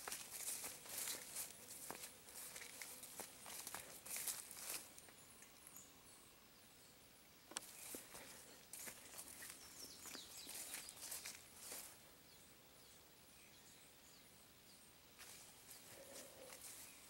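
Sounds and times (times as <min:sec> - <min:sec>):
footsteps through dry leaves: 0:00.0 - 0:05.0, 0:07.7 - 0:12.0.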